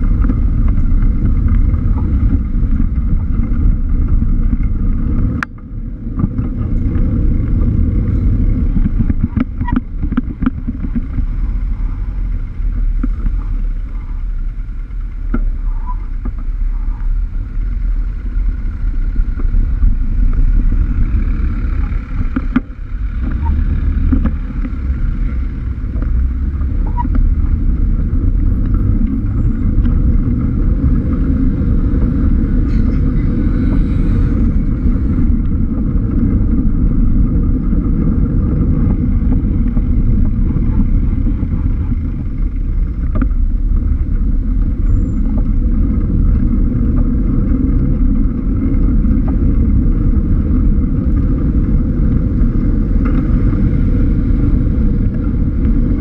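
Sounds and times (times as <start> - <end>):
vehicle engines passing: 0.0 - 56.0
wind buffeting microphone: 0.0 - 56.0.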